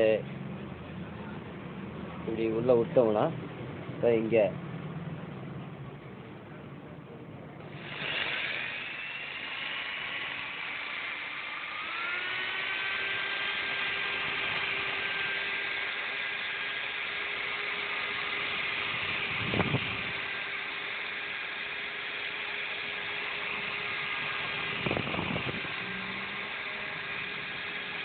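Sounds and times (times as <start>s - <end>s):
electric drill whining: 7.6s - 28.0s.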